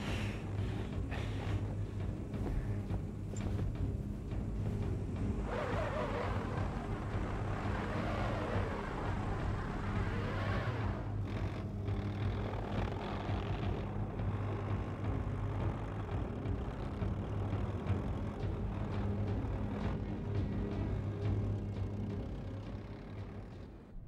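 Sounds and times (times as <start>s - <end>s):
rush of engine noise: 4.7s - 11.7s.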